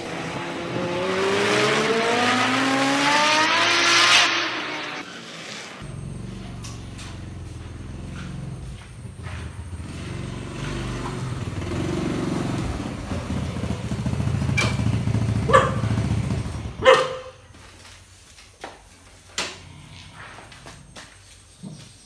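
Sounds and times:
motorbike engine running: 5.8s - 17.6s.

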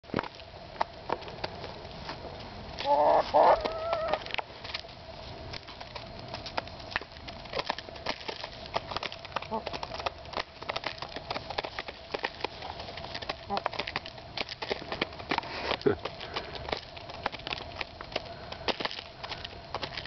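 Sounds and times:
hen calling loudly: 2.8s - 4.3s
beaks pecking seeds in bowl: 2.8s - 4.8s, 5.4s - 20.0s.

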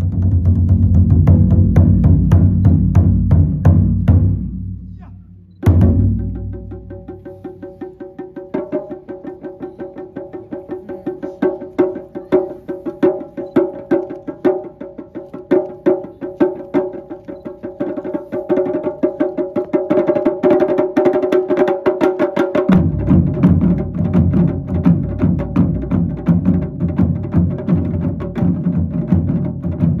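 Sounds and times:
big drums heavy strokes: 5.7s - 8.8s.

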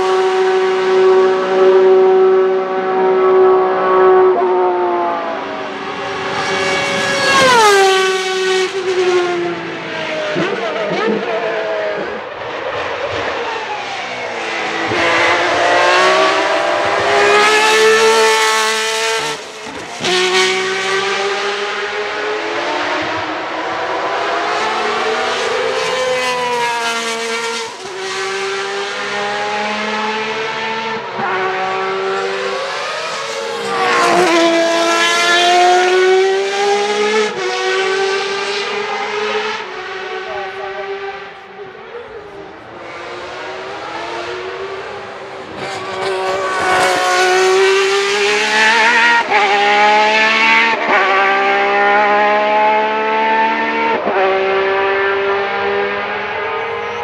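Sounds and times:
racing car engine accelerating: 0.0s - 57.0s.

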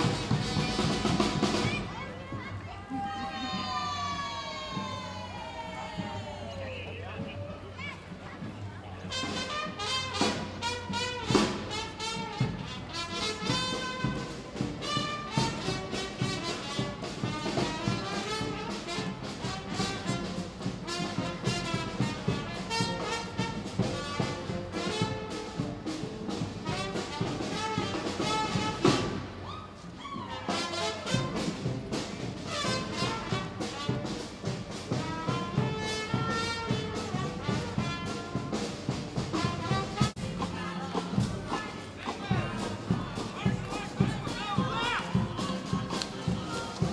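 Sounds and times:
brass band playing: 0.0s - 2.4s, 9.0s - 46.9s
drum hits: 0.0s - 2.4s
trumpets and trombones: 0.0s - 2.4s, 9.0s - 46.9s
steady drum beat: 0.0s - 29.4s, 30.5s - 46.9s.

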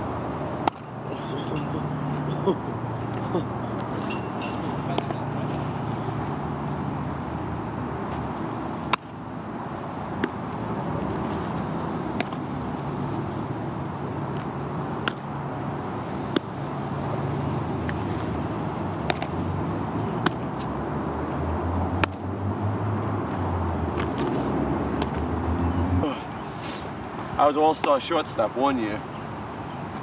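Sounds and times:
baseball smacking into gloves: 0.6s - 0.8s, 8.9s - 9.1s, 10.2s - 10.4s, 12.1s - 12.5s, 15.0s - 15.3s, 19.0s - 19.4s, 20.2s - 20.4s, 22.0s - 22.2s, 24.0s - 25.3s.

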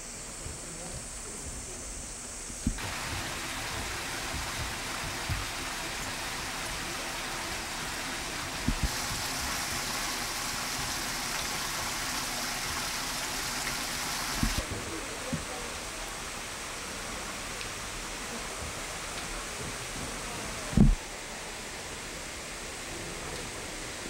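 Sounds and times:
soft low thumps: 0.4s - 6.2s, 8.5s - 9.0s, 20.8s - 21.0s.

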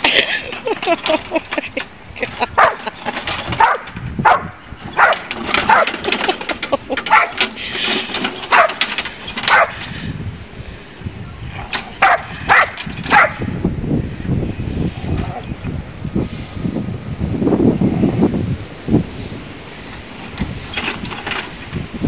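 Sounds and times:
dog barking sharply: 2.6s - 2.8s, 3.6s - 5.9s, 7.1s - 7.4s, 8.5s - 8.8s, 9.5s - 9.8s, 12.0s - 13.4s.

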